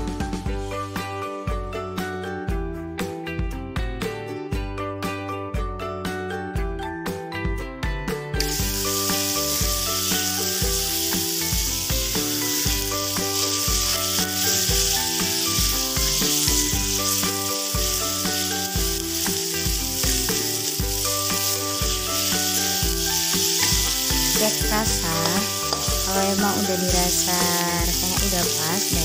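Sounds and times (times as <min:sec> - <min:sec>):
background music with steady beat: 0:00.0 - 0:29.0
food sizzling in a hot pan: 0:08.4 - 0:29.0
metal spatula stirring: 0:12.4 - 0:29.0.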